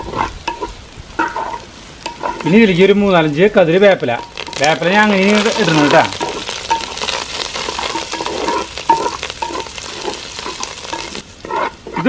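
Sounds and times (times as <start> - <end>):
wooden spatula stirring in pot: 0.0 - 2.7, 4.0 - 12.0
vegetables sizzling in oil: 0.0 - 12.0.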